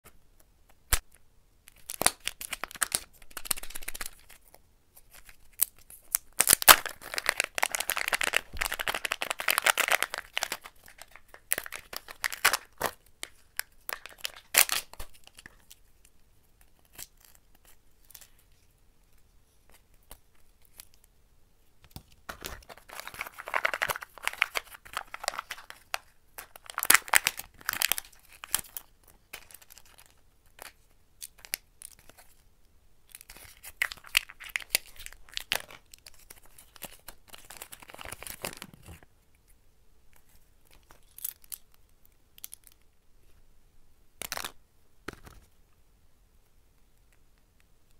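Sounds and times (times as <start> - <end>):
wrappers crinkling: 5.2 - 13.3, 22.6 - 28.7.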